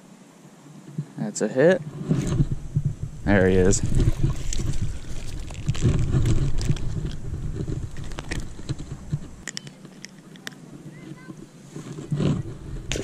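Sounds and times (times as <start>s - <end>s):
wind rumble on microphone: 0.7s - 9.4s, 10.6s - 13.0s
microphone handling noise: 1.8s - 13.0s
fish splashing and thrashing: 2.0s - 10.5s, 11.1s - 13.0s.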